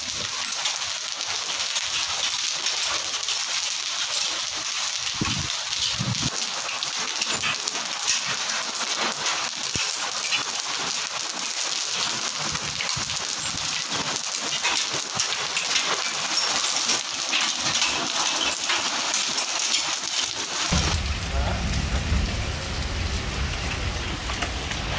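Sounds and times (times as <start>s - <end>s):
hail and rain on stone paving: 0.0s - 24.9s.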